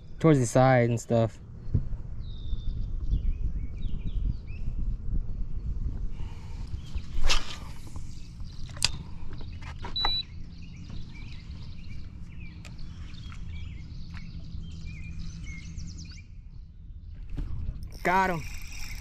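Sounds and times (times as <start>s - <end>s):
steady low rumble: 0.0s - 19.0s
small birds chirping: 6.2s - 19.0s.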